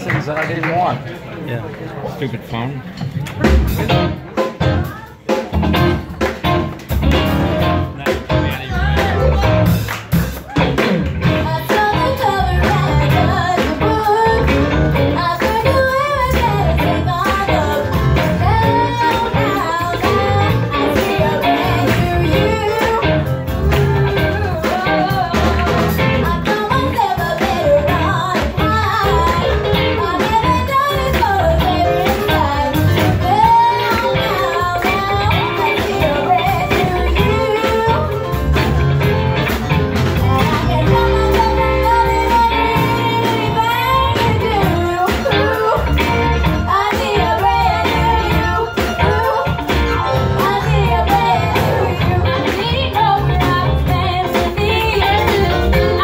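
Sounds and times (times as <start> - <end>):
band of piano drums and guitar: 0.0 - 2.0, 2.7 - 56.0
women singing pop-rock song: 11.2 - 38.4, 40.1 - 56.0.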